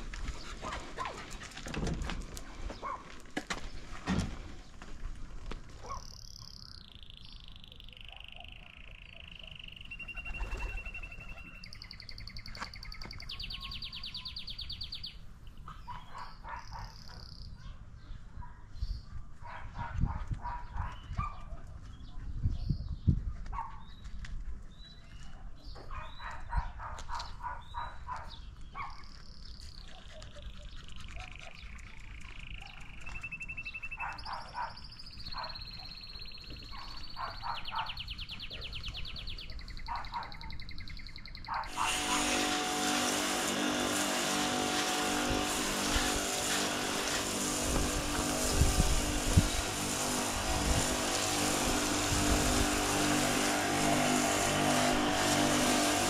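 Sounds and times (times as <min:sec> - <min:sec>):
birds chirping and whistling: 0:05.8 - 0:19.1, 0:27.2 - 0:43.2
pressure washer jet hissing: 0:41.7 - 0:56.0
pressure washer motor hum: 0:41.7 - 0:56.0.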